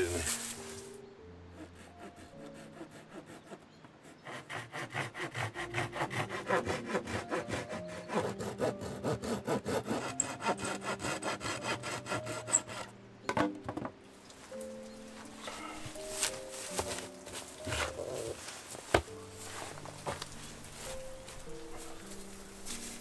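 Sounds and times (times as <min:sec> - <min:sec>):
hand saw cutting wood: 0:01.5 - 0:12.9, 0:15.8 - 0:19.1.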